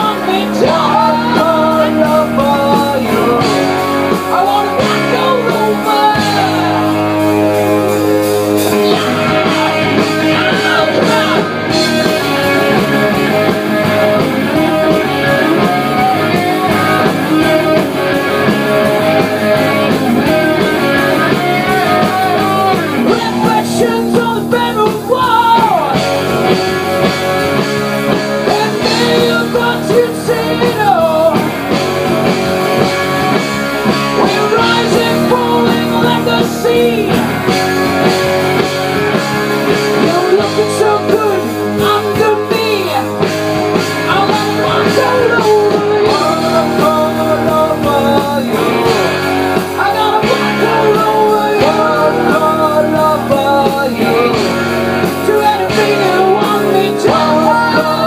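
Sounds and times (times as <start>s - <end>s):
live rock band playing: 0.0s - 58.0s
man singing: 0.0s - 58.0s.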